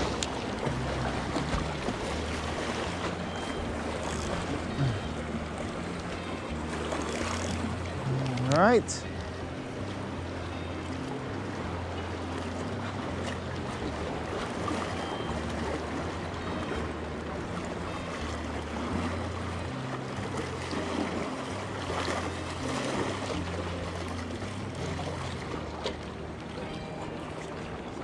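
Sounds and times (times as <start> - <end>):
sea waves washing against rocks: 0.0 - 5.6.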